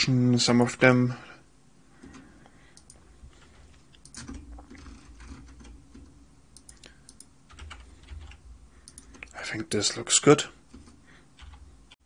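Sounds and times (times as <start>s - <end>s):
computer keyboard clicks: 2.8s - 3.0s, 3.9s - 9.4s
mouse clicks: 2.8s - 3.0s, 6.6s - 7.3s, 8.8s - 9.4s.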